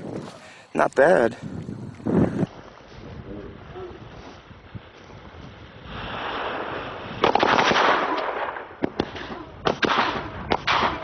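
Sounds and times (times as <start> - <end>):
firecracker fuse hissing: 2.9 - 9.3
firecrackers bursting: 4.4 - 11.0
firecracker bangs: 5.9 - 11.0.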